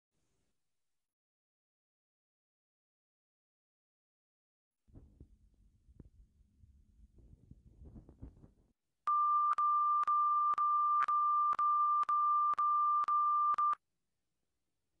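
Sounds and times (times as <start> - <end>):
steady test tone beep: 9.1 - 13.8.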